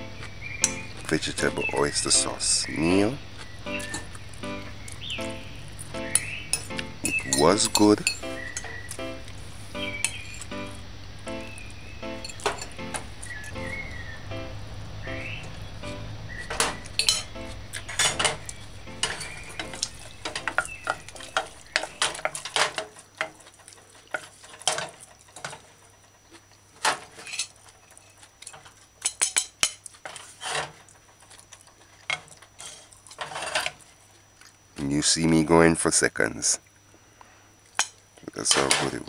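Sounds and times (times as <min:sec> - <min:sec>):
wooden spoon stirring in metal pot: 0:00.6 - 0:10.8, 0:11.5 - 0:13.8, 0:16.3 - 0:34.1
fork clinking on ceramic plate: 0:06.1 - 0:08.8, 0:10.0 - 0:10.5, 0:12.2 - 0:13.4, 0:16.6 - 0:23.4.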